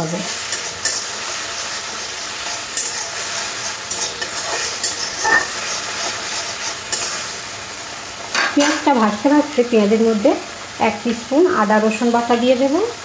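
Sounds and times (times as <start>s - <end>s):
onion paste sizzling in oil: 0.0s - 13.0s
metal spatula scraping pan: 0.4s - 7.4s.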